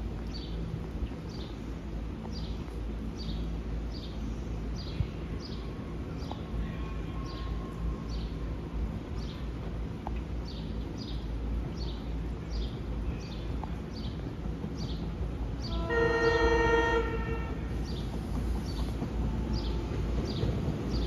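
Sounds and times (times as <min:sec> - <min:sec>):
steady low rumble: 0:00.0 - 0:15.8.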